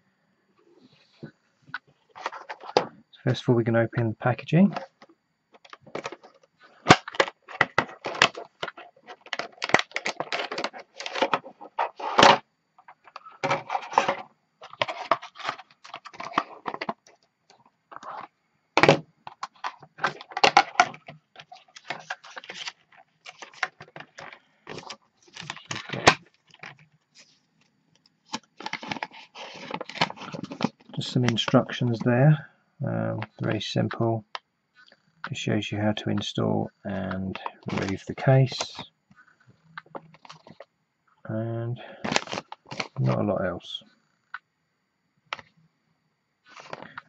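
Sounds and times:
plastic packaging crackling: 5.6s - 12.3s, 19.5s - 27.3s, 28.3s - 31.5s, 37.6s - 38.1s, 42.0s - 43.0s.

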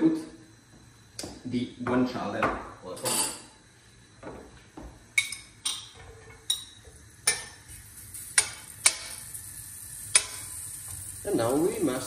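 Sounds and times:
faint sizzle: 0.0s - 12.0s
metal fork clicking against pan: 8.4s - 9.2s, 10.1s - 10.5s.

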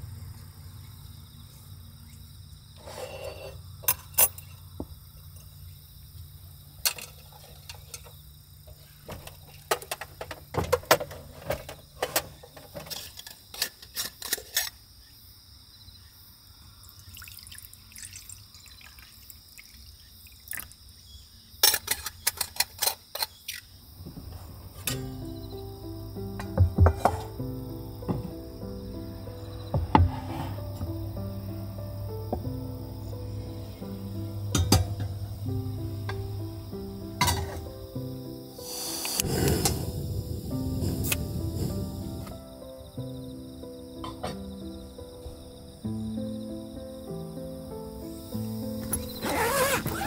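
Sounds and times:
crickets and insects calling: 0.0s - 50.0s
low hum: 24.1s - 37.9s.

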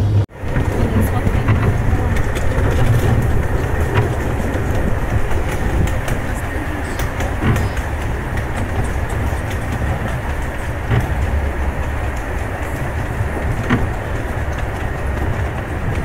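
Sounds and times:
sharp track clicks: 0.0s - 16.0s
train wheels rumbling on rails: 0.0s - 16.0s.

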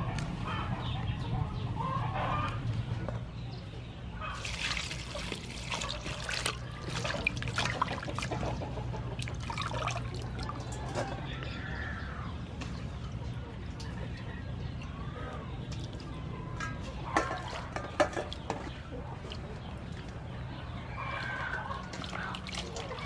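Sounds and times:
hands rinsing vegetables in water: 4.4s - 10.8s, 16.7s - 20.0s, 21.2s - 23.0s.

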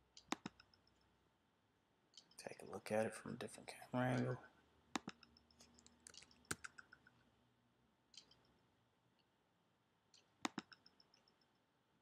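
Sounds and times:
computer mouse clicks: 0.1s - 1.1s, 2.1s - 2.4s, 4.9s - 7.2s, 8.1s - 8.6s, 10.1s - 11.5s.

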